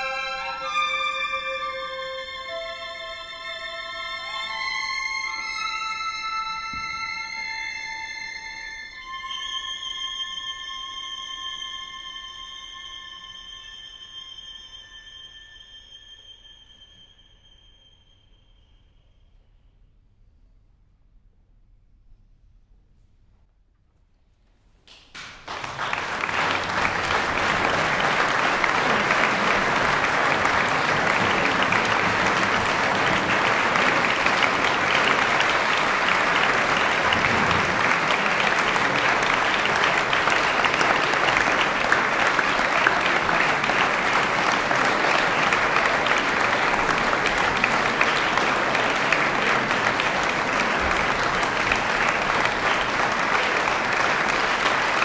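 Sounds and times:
audience applauding: 24.9 - 55.0.

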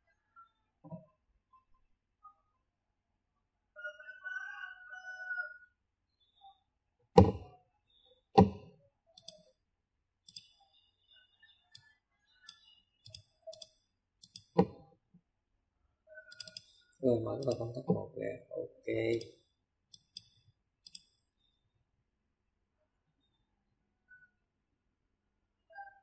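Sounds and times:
computer mouse clicks: 9.2 - 9.6, 10.3 - 10.7, 11.7 - 14.8, 16.3 - 17.8, 19.1 - 21.2.

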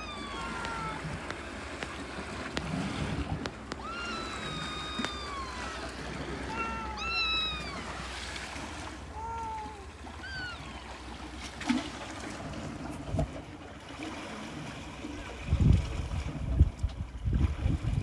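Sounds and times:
kitten meowing: 0.0 - 1.4, 3.7 - 8.0, 9.2 - 10.9
surf: 0.0 - 18.0
wind: 0.0 - 18.0.

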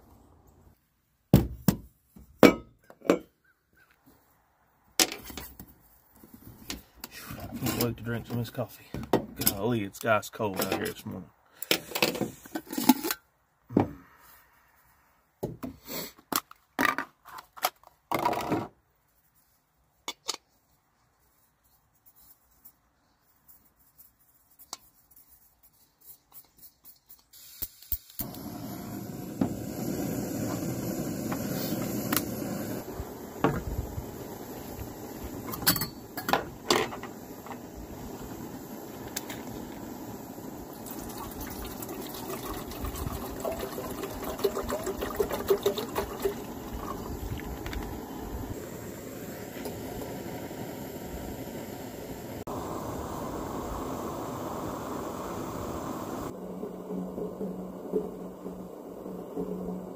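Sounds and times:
camp gear knocking and scraping: 5.0 - 9.7, 11.7 - 13.2, 15.4 - 18.8, 33.4 - 33.8, 34.9 - 38.4.

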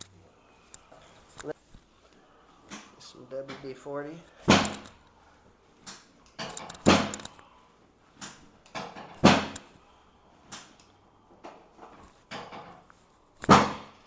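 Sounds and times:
spine cracks and thumps: 4.3 - 5.0, 5.8 - 7.4, 8.2 - 9.7, 11.4 - 14.0.

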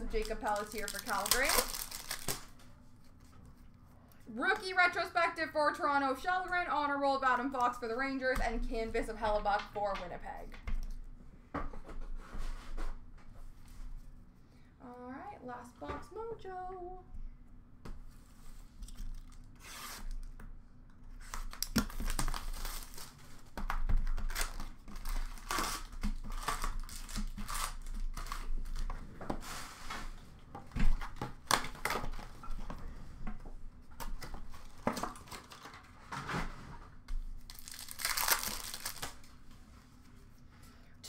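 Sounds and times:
card pack wrappers ripping: 0.0 - 2.6, 21.3 - 23.4, 24.0 - 28.8, 37.4 - 39.3.

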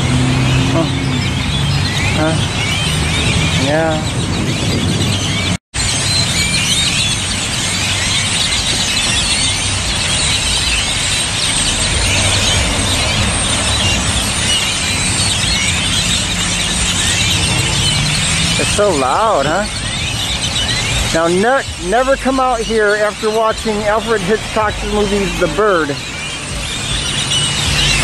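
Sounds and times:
flock of birds chattering: 0.5 - 28.0.

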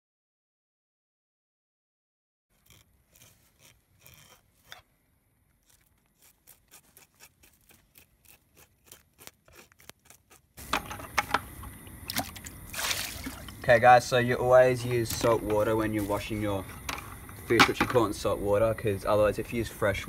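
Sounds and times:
knife scraping fish scales: 2.5 - 4.9, 5.6 - 11.2.

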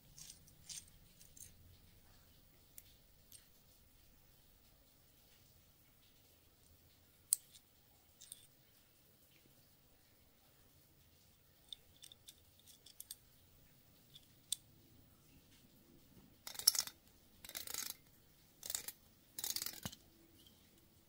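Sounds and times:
metal threads grating: 16.4 - 20.5.

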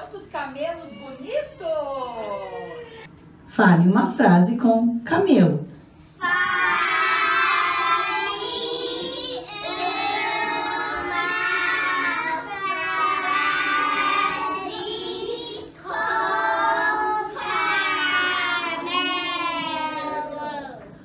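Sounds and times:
children singing: 6.2 - 20.8.

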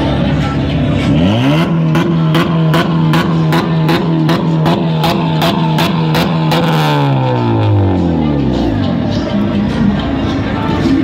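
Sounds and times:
car engine bouncing on rev limiter: 1.0 - 8.1.

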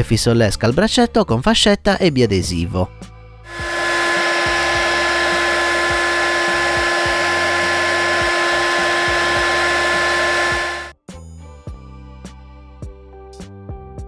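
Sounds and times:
heat gun blowing with fan whine: 3.5 - 10.9.

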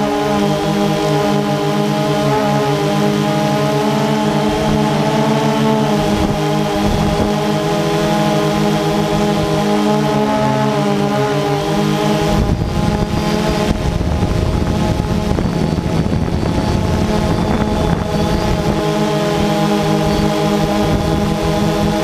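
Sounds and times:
drone motors whining: 0.0 - 22.0
low rushing noise: 11.8 - 22.0.

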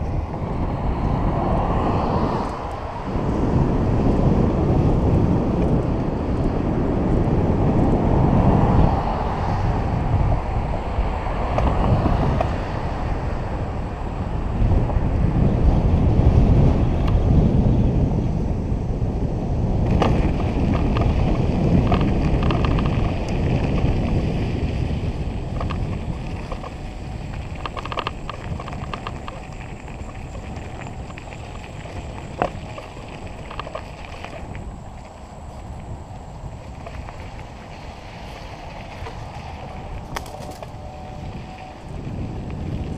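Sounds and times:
wind buffeting microphone: 0.0 - 42.9
tyres crunching over gravel: 19.8 - 42.9.

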